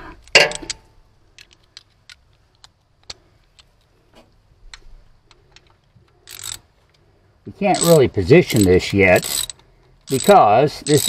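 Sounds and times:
ratchet wrench metal clicks: 5.3s - 6.6s, 7.7s - 11.0s.

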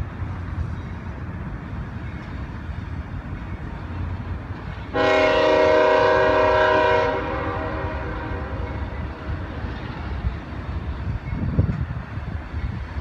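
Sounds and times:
freight train rumbling past: 0.0s - 13.0s
diesel locomotive horn: 4.9s - 9.4s.

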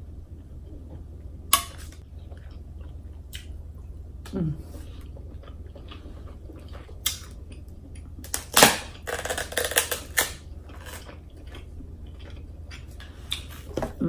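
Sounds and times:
crab shell cracking: 8.2s - 11.0s.

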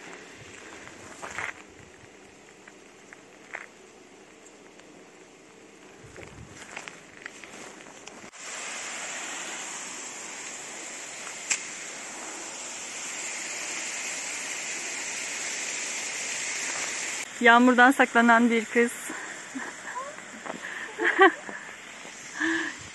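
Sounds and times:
footsteps: 0.0s - 3.8s, 5.9s - 8.3s, 20.0s - 22.2s
hiss of falling water: 0.0s - 4.0s, 5.4s - 22.9s.

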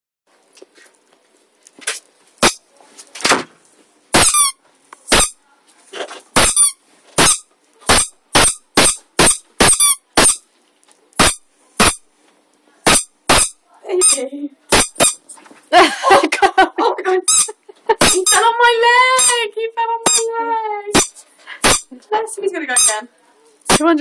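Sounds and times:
bed squeaking: 4.2s - 5.4s, 6.4s - 10.4s, 11.2s - 12.0s, 12.9s - 15.3s, 17.3s - 18.5s, 20.0s - 20.3s, 21.0s - 21.9s.

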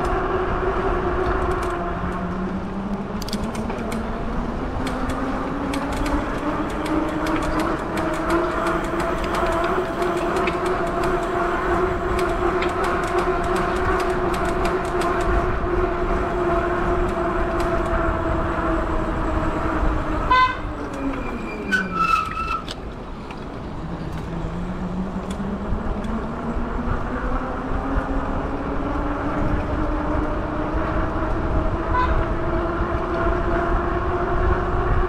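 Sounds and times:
horn honking: 20.2s - 22.7s, 31.8s - 32.4s.

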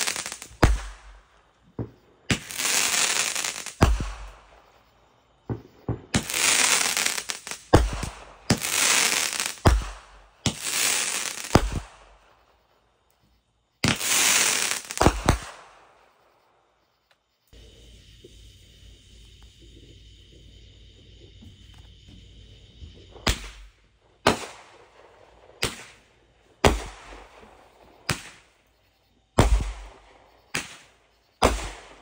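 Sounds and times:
firework bursts with crackling sparks: 0.0s - 1.3s, 2.2s - 4.7s, 5.5s - 12.3s, 13.8s - 16.0s, 23.2s - 28.6s, 29.4s - 32.0s.

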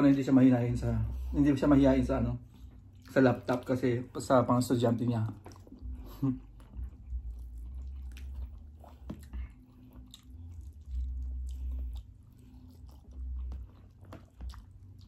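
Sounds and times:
people chewing and biting: 2.1s - 15.0s
wet smacks and clicks: 7.3s - 15.0s.

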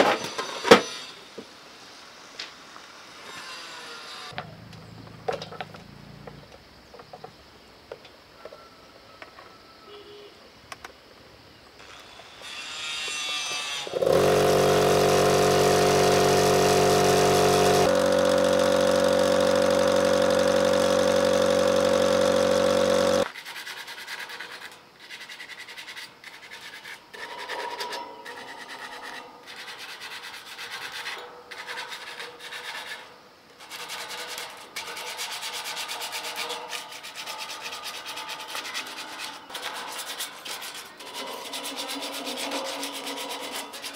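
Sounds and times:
air compressor motor running: 13.9s - 23.3s
sandpaper rubbing on metal bars: 20.9s - 43.9s.

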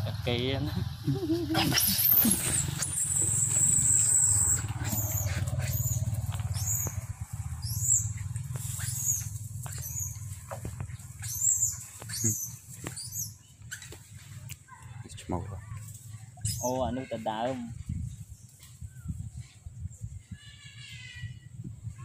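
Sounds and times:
monkeys squeaking: 1.0s - 14.4s, 15.6s - 17.3s.

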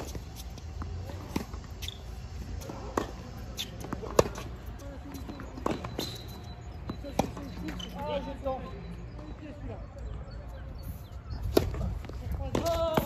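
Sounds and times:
tennis ball bouncing on hard court: 0.0s - 7.9s, 11.4s - 13.0s
tennis ball struck by rackets: 2.6s - 4.5s.

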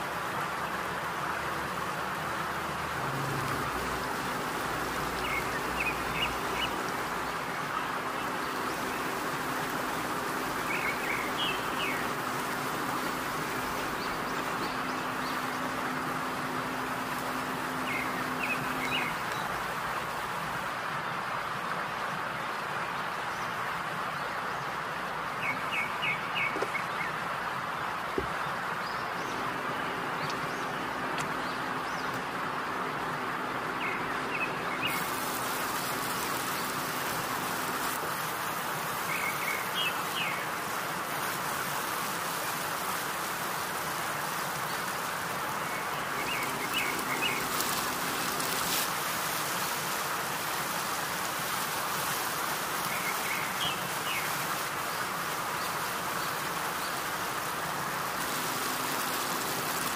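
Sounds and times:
steady hiss: 0.0s - 59.9s
bird chirps: 8.2s - 19.6s.

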